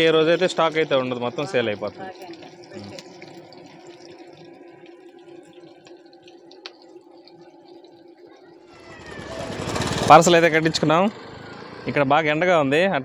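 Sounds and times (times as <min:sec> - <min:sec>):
food deep-frying in oil: 0:00.0 - 0:13.0
loud rushing noise: 0:08.8 - 0:12.1.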